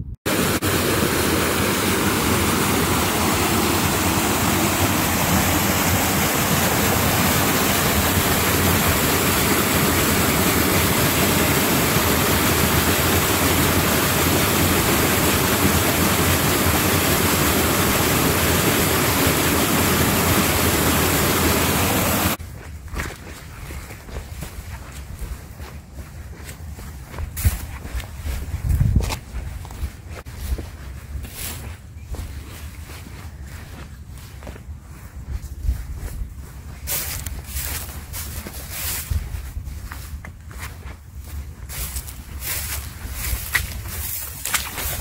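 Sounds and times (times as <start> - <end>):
water rushing over boulders: 0.3 - 22.4, 43.2 - 45.0.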